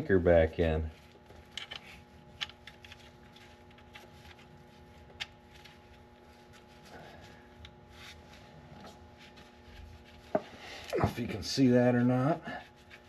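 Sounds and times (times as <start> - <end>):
faint steady hum: 0.0 - 13.0
gloved hands rubbing and clicking: 0.8 - 11.0, 12.7 - 13.0.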